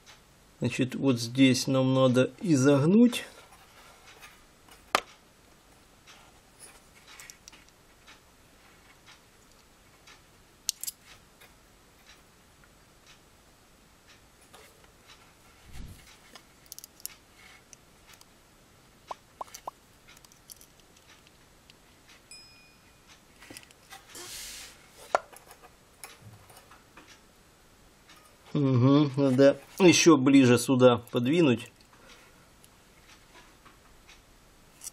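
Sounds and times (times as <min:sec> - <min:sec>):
metal tweezers clicking and tapping: 0:10.7 - 0:11.1
short scrape: 0:24.1 - 0:24.8.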